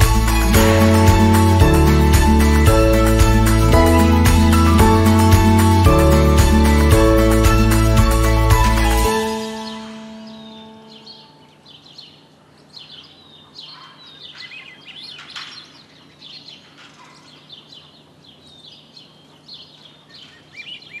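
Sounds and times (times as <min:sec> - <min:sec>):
birds singing and chirping: 0:00.0 - 0:21.0.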